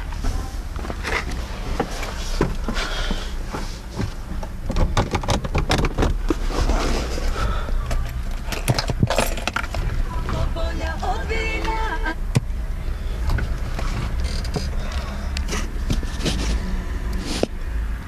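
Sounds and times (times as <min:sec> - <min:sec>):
diesel engine idling: 0:06.4 - 0:17.1.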